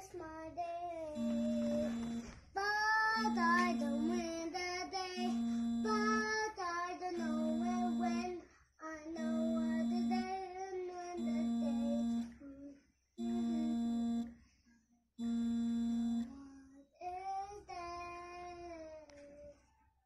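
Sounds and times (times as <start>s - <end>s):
high singing voice: 0.0s - 12.6s, 13.2s - 14.3s.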